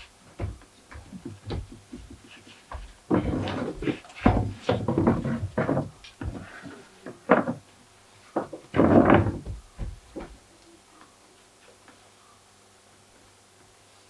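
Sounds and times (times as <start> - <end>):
props knocking and scraping: 0.3 - 7.6, 8.4 - 10.4.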